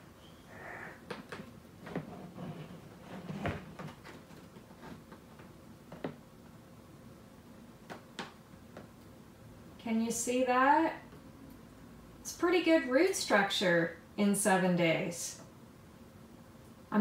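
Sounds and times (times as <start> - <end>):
plastic knocks and clicks: 3.4 - 6.2.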